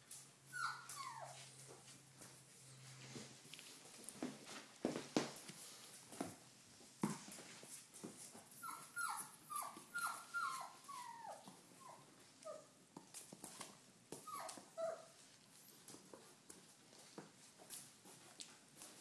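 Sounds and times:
puppy whimpering: 0:00.4 - 0:01.4, 0:08.5 - 0:12.8, 0:14.1 - 0:16.0.

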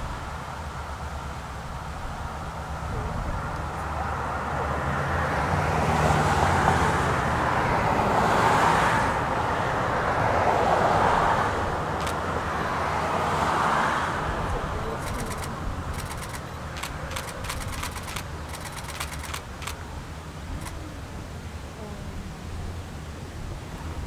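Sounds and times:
vehicle rushing: 0:00.0 - 0:24.0.

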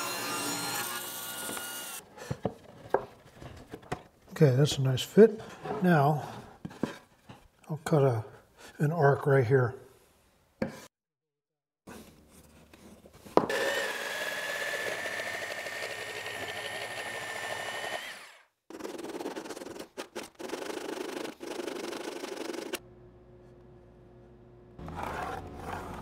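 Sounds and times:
jigsaw cutting wood: 0:00.0 - 0:02.0, 0:13.5 - 0:22.8.

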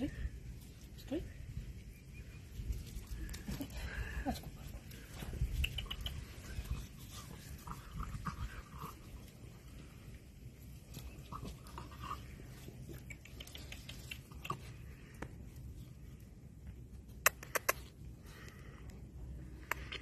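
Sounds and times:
sharp clicks: 0:17.2 - 0:17.9.

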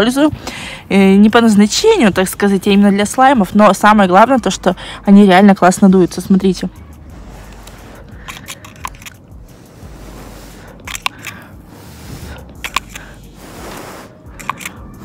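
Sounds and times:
soft clicks and scrapes of bottle: 0:07.4 - 0:11.6, 0:12.2 - 0:15.0.

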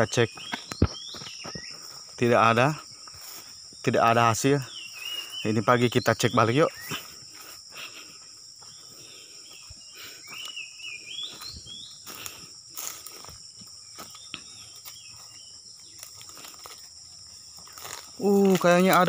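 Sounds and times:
footsteps crunching on dry leaves: 0:00.0 - 0:19.0
insects chorus: 0:00.0 - 0:19.0.

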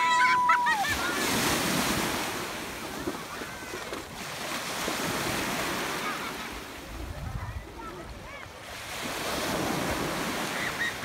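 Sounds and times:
small waves breaking on beach: 0:00.0 - 0:11.0.

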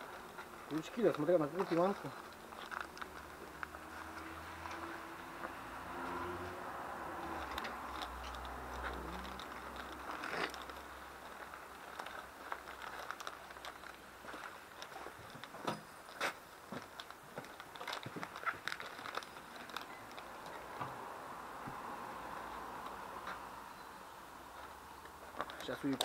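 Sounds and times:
wrapper crinkling: 0:00.0 - 0:04.9, 0:07.2 - 0:20.8.

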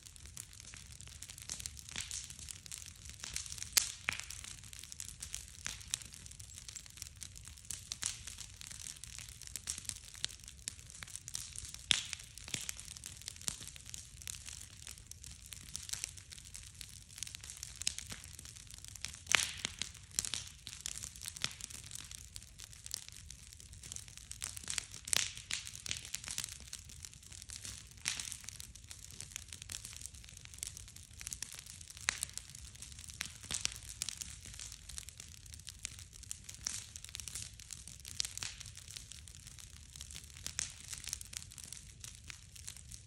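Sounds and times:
bonfire crackling: 0:00.0 - 0:43.0
sharp pops of fire: 0:00.7 - 0:06.8, 0:11.0 - 0:14.9, 0:15.7 - 0:22.1, 0:23.8 - 0:30.0, 0:30.6 - 0:35.1, 0:35.8 - 0:39.2.

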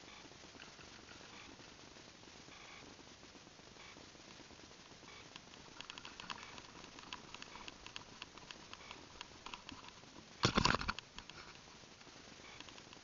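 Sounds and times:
sharp clicks and ticks: 0:05.1 - 0:11.6, 0:12.4 - 0:13.0.

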